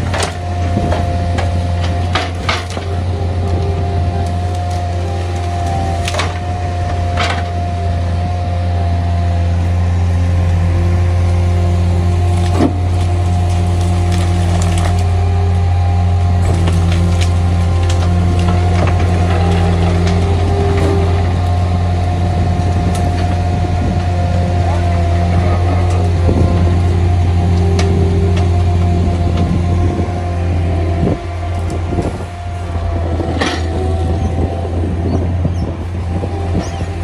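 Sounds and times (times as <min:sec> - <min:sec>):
heavy machinery engine drone: 0:00.0 - 0:37.0
hydraulic whine: 0:00.0 - 0:37.0
branches snapping: 0:00.1 - 0:07.6, 0:12.2 - 0:21.9.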